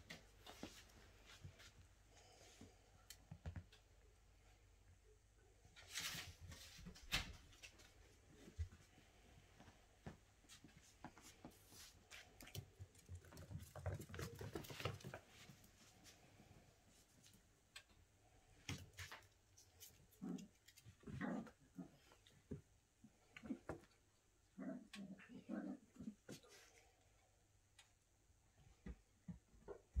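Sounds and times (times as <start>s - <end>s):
paws clicking on tile floor: 9.6s - 15.6s.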